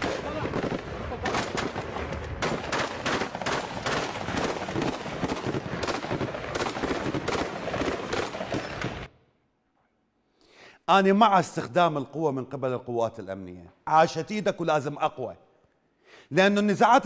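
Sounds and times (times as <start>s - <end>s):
heavy automatic gunfire: 0.0s - 9.1s.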